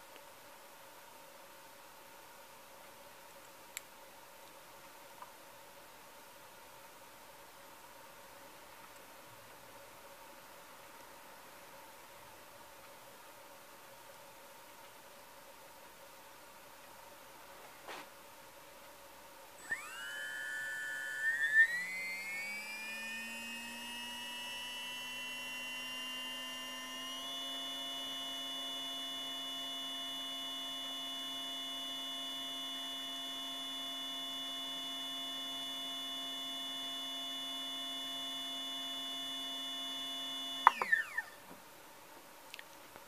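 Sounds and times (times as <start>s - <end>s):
electric motor whine: 19.6s - 41.4s.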